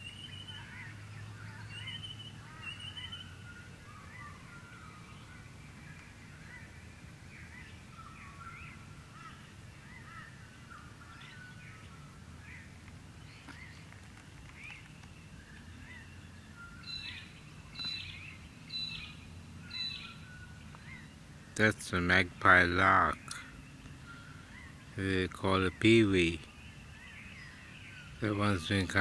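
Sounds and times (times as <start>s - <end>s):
magpie-lark calling: 0.0s - 12.7s, 15.5s - 21.2s
small birds chirping: 0.0s - 29.0s.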